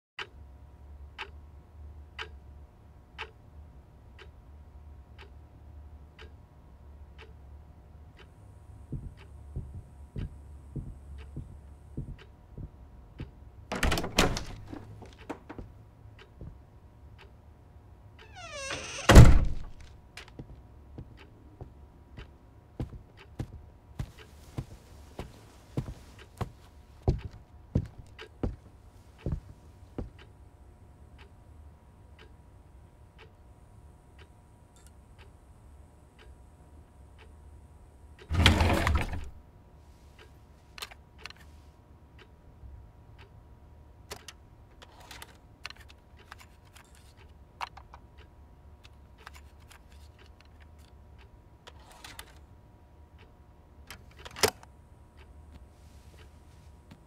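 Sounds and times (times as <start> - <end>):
faint low hum: 0.2 - 57.0
wall clock ticking: 1.0 - 1.4, 2.1 - 2.4, 3.2 - 3.4, 4.2 - 4.4, 5.0 - 5.4, 6.1 - 6.4, 7.2 - 7.4, 8.1 - 17.4, 21.0 - 30.3
knocks and clicks: 8.9 - 15.7
loud thunks: 13.7 - 15.6, 19.1 - 19.8.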